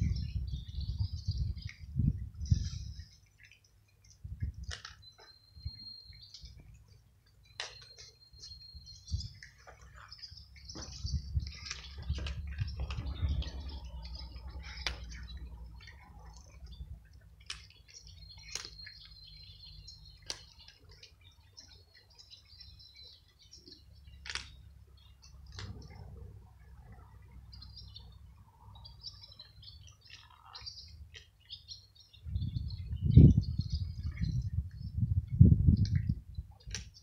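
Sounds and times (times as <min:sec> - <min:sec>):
low rumbles on microphone: 0:00.0 - 0:03.0, 0:10.7 - 0:17.0, 0:25.3 - 0:28.3, 0:32.2 - 0:36.8
small birds chirping: 0:00.0 - 0:37.0.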